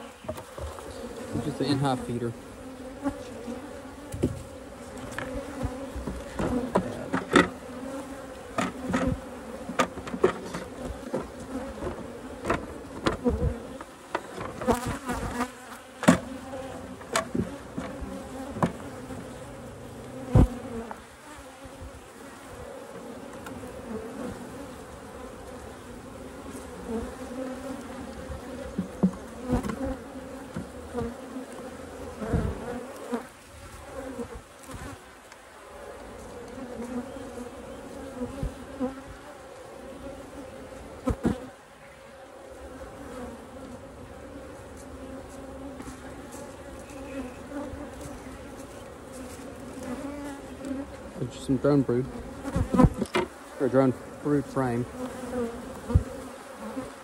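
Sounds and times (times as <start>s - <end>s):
bees humming: 0.0s - 57.0s
clicks and knocks of wooden hive parts: 0.2s - 1.0s, 4.1s - 7.6s, 8.4s - 15.4s, 16.0s - 16.4s, 17.0s - 19.3s, 28.7s - 30.8s, 52.5s - 53.4s.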